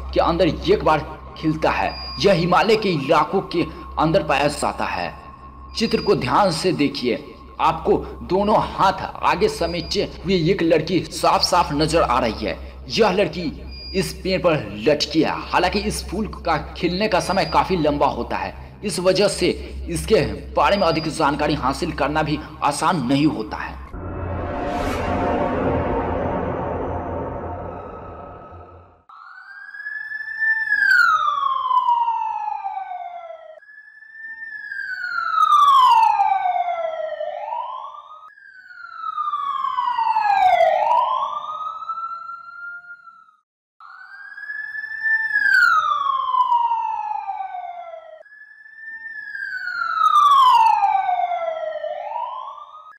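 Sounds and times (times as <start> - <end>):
background music: 0.0 - 13.7
siren-like wailing tone: 0.0 - 52.9.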